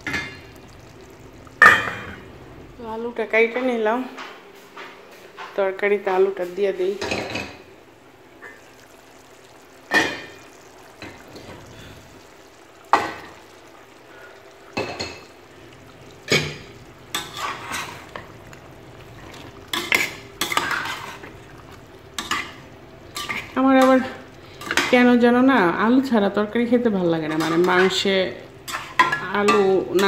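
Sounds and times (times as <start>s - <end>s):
spoon scraping a pot: 17.1s - 18.2s, 19.6s - 21.4s.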